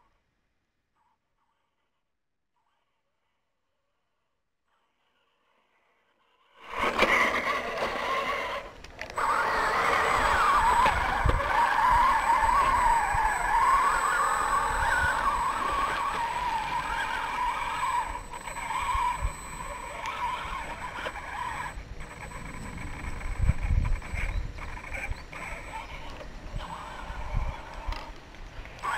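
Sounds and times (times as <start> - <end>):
electric motor and gearbox whining: 6.6 - 28.9.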